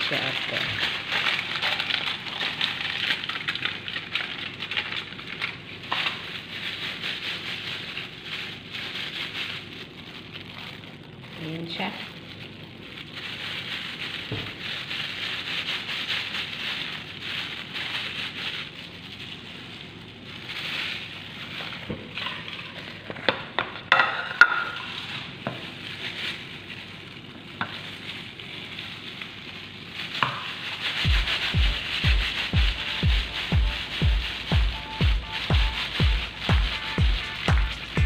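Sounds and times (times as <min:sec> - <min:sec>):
plastic gloves rustling: 0:00.0 - 0:38.0
music with bass beat: 0:31.1 - 0:38.0.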